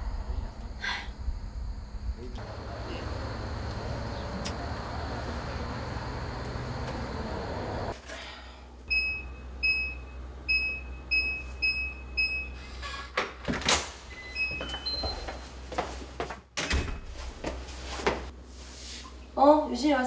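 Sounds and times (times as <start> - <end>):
steady outdoor hum: 0.0 - 14.2.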